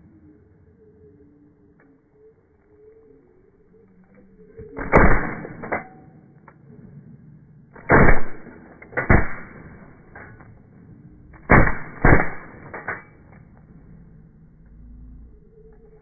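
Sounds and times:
shotgun shots with echo: 4.8 - 5.8, 7.8 - 10.2, 11.5 - 13.0.

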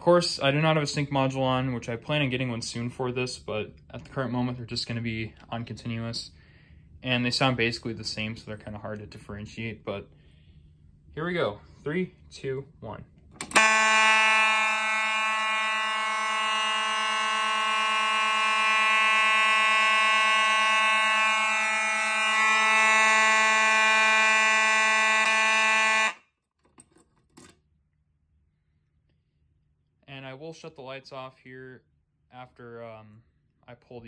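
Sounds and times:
fire alarm horns buzzing: 13.4 - 26.4.

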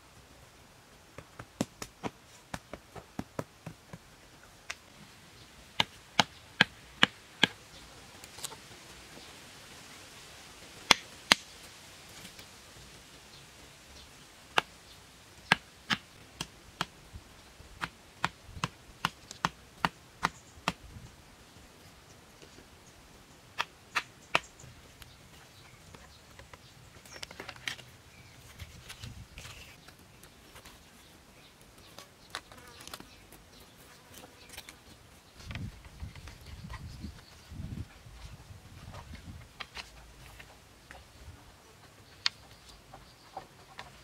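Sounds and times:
axe knocking wooden stakes: 5.8 - 7.6, 15.5 - 16.9, 17.8 - 20.8
vine strips rustling and scraping: 25.0 - 40.6.

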